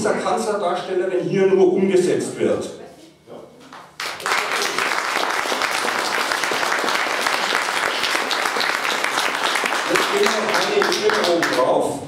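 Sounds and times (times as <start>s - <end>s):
audience applauding: 4.0s - 11.8s.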